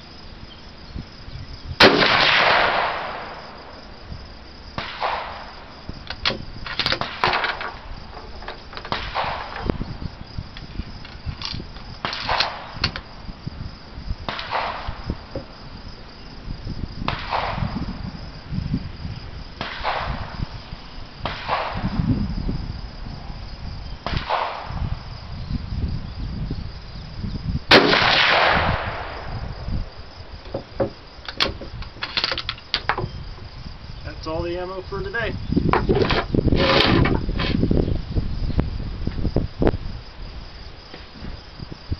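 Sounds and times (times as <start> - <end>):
rifle shots with echo: 1.8 - 3.5, 4.8 - 5.6, 8.9 - 9.7, 14.3 - 15.0, 17.1 - 17.6, 19.6 - 20.3, 21.2 - 21.9, 24.0 - 24.8, 27.7 - 29.4.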